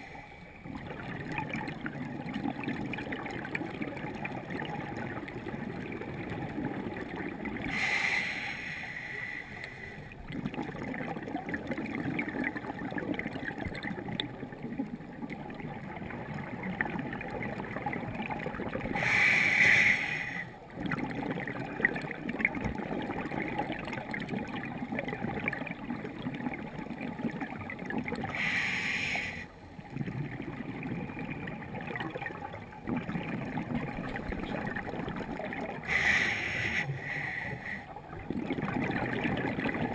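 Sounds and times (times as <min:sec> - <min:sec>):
exhaust bubbling underwater: 0:00.0 - 0:07.9, 0:10.1 - 0:39.9
crackling water background: 0:00.0 - 0:39.9
scuba regulator breaths hissing: 0:07.7 - 0:10.1, 0:19.0 - 0:20.5, 0:28.3 - 0:29.5, 0:35.8 - 0:37.9.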